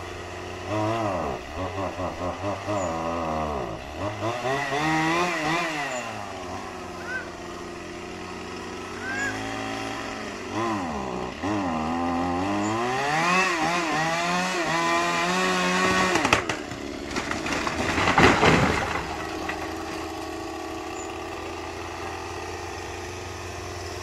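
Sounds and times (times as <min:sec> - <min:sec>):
chainsaw cutting wood: 0:00.0 - 0:24.0
tree trunk crashing down: 0:15.0 - 0:20.5
wood cracking: 0:15.4 - 0:20.6.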